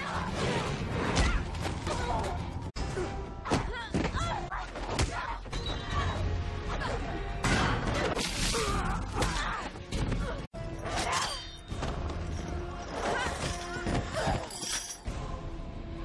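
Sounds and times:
dramatic film score: 0.0 - 16.0.

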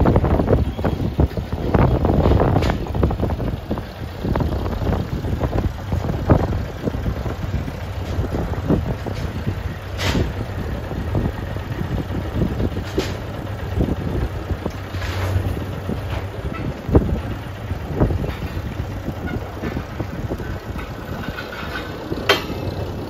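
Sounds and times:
telehandler engine running: 0.0 - 23.0
metal knocks and clanks: 4.3 - 13.9, 14.8 - 23.0.

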